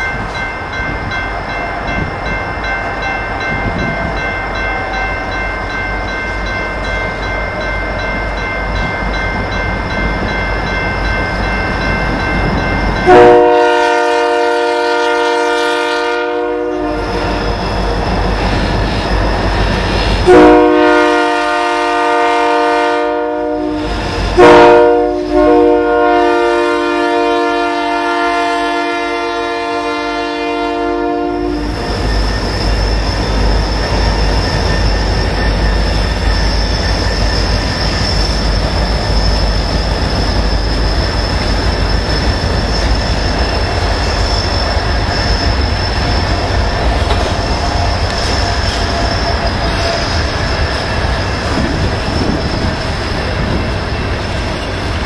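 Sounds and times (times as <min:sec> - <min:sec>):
rumble of locomotives and wheels: 0:00.0 - 0:55.0
train air horn: 0:13.0 - 0:17.5, 0:20.2 - 0:31.8.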